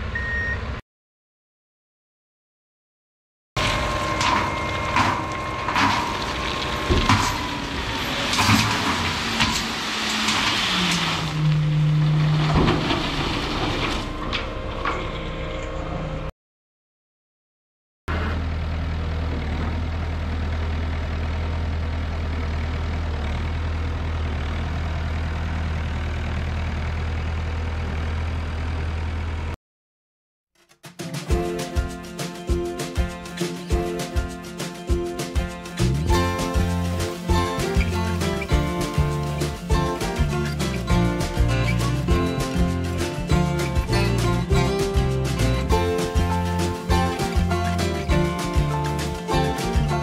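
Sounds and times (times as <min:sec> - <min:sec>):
gravel clattering: 0:03.6 - 0:14.3, 0:32.1 - 0:50.0
dump truck engine running: 0:03.6 - 0:16.3, 0:18.1 - 0:29.6, 0:35.7 - 0:50.0
tractor engine low drone: 0:03.6 - 0:16.3, 0:18.1 - 0:29.6, 0:35.7 - 0:50.0.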